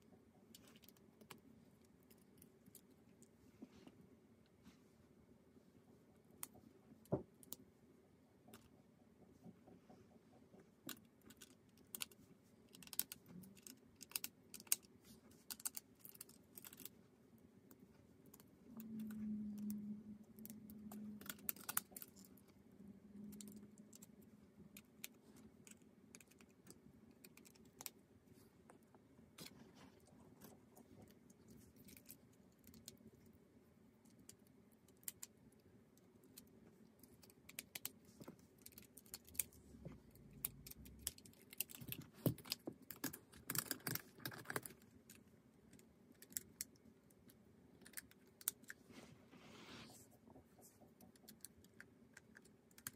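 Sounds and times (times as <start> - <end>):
plastic parts clicking and rattling: 10.8 - 17.0, 18.2 - 22.5, 36.2 - 46.8.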